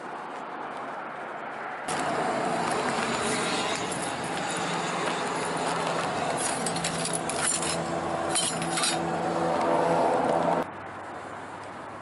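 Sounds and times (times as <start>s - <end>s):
debris and glass clinking: 2.9s - 9.0s.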